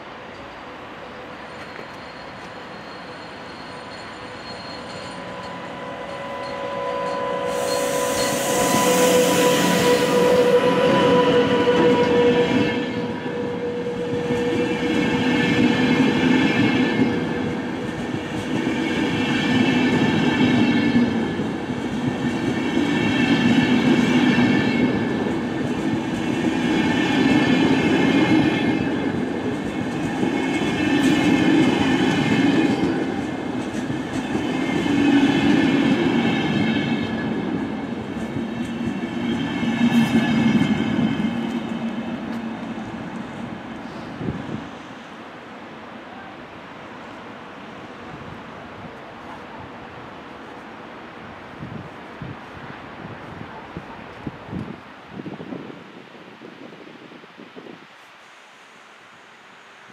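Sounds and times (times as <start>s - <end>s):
freight train passing: 0.0s - 59.9s
wheel squeal: 1.4s - 14.7s.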